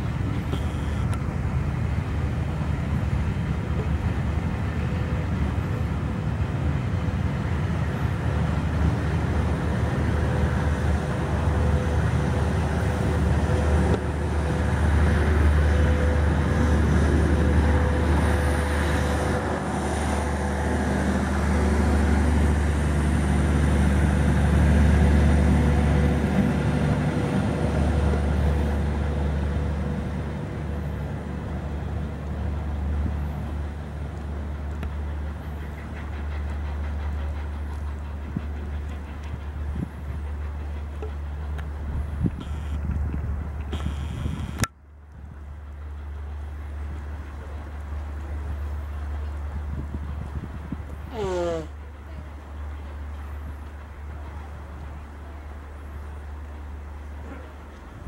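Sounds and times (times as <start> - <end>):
steam locomotive exhaust: 0.0 - 44.7.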